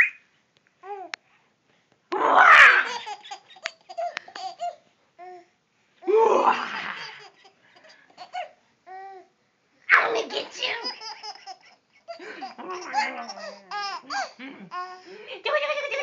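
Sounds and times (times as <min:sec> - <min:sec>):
baby laughing: 0:02.7 - 0:04.8, 0:06.8 - 0:08.6, 0:10.0 - 0:16.0.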